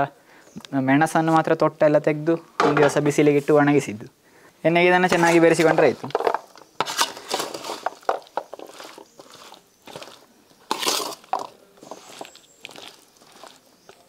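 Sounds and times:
spoon squelching through paste: 6.8s - 14.0s.

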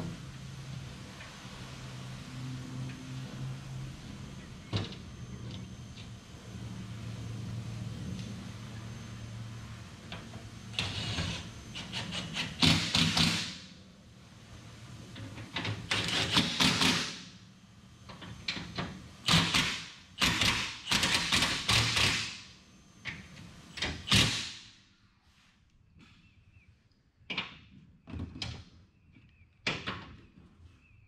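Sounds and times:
impact driver bursts: 10.8s - 13.7s, 15.8s - 17.3s, 19.2s - 22.4s, 23.8s - 24.6s.

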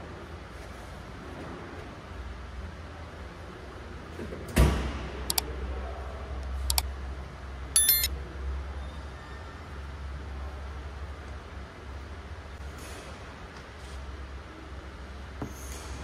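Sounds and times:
bright bell ding: 7.8s - 8.1s
sharp mouse clicks: 7.8s - 8.1s.

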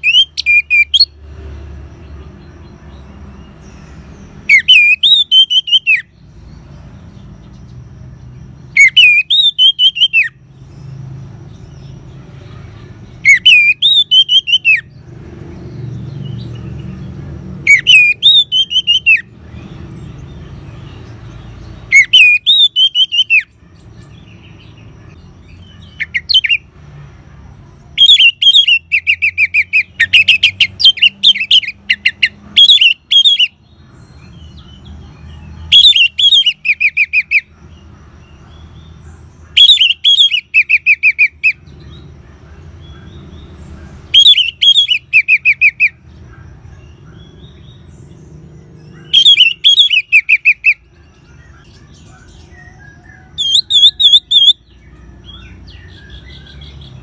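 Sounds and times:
thrush singing whistled phrases: 0.0s - 1.2s, 4.3s - 6.2s, 8.6s - 10.5s, 13.2s - 15.0s, 17.6s - 23.6s, 25.5s - 26.7s, 28.0s - 34.6s, 35.4s - 37.5s, 39.5s - 42.0s, 44.1s - 46.1s, 48.9s - 57.0s.

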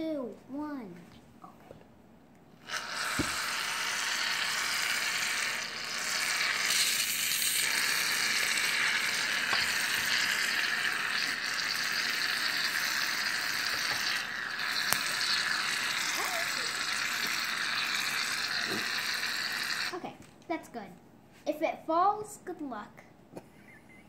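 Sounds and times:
aerosol can spraying foam: 2.6s - 19.9s.

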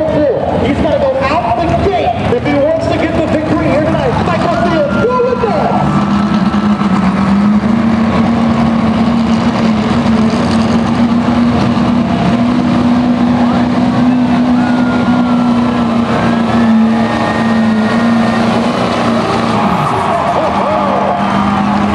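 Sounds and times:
pickup engine at high revs: 1.6s - 21.9s.

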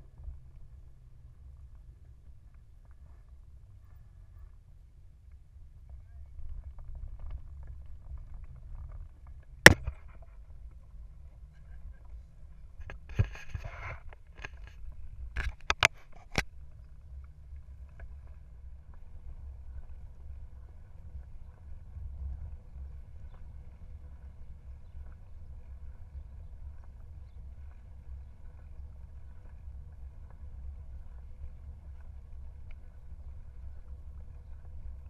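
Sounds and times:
wind and road noise rumble: 0.0s - 35.0s.

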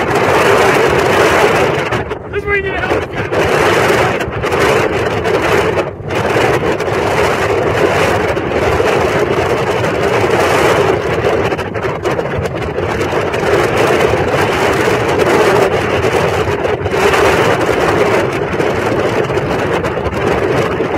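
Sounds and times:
powerboat engine drone: 0.0s - 20.9s
wind buffeting microphone: 0.0s - 20.9s.

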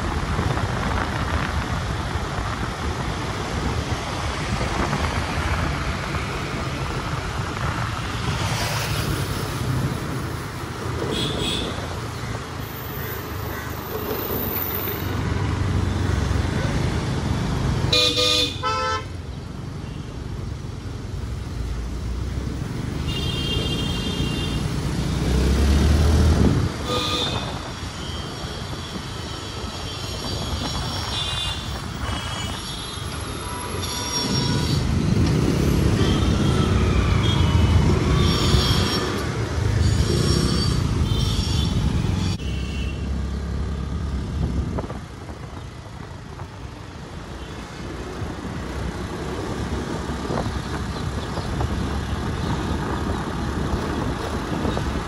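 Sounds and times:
engine and tyre rumble: 0.0s - 55.0s
car horn honks: 26.8s - 27.6s.

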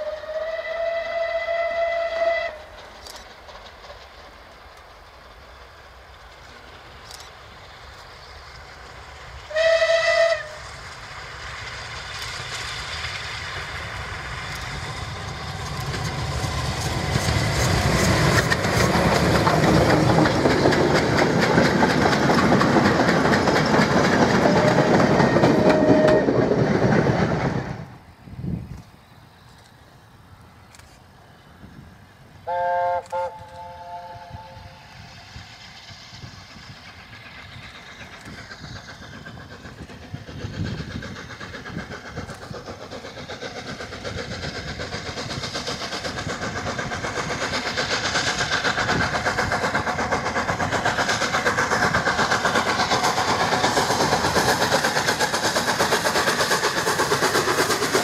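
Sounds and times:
steam locomotive whistle: 0.0s - 2.7s, 9.5s - 10.8s, 24.4s - 26.5s, 32.4s - 35.1s
train running noise: 0.0s - 58.0s.

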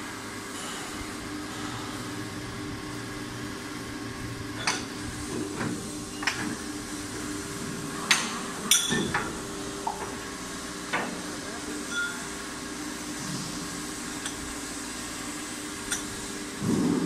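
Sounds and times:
metallic mold clanks: 8.1s - 10.1s.

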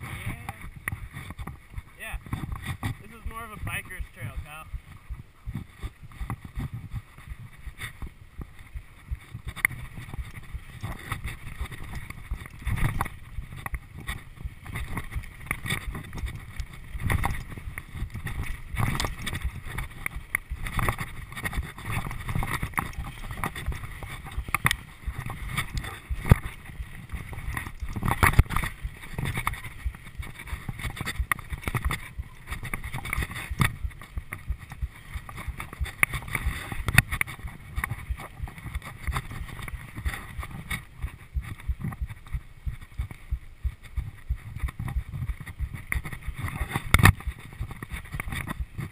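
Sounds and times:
tyre noise on dirt: 0.0s - 48.9s
wind rumble on microphone: 0.0s - 48.9s
bike chain and frame rattling: 5.5s - 43.2s.

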